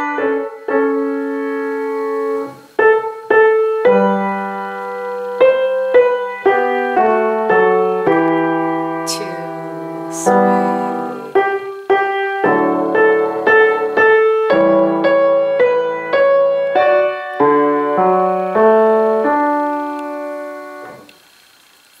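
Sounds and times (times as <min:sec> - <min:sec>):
grand piano playing: 0:00.0 - 0:21.1.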